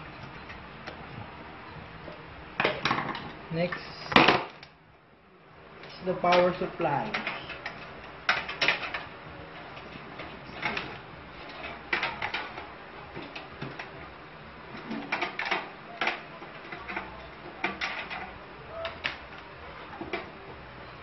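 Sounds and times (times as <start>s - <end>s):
metal clicks and knocks: 6.3s - 9.1s, 9.7s - 14.0s, 14.8s - 20.4s.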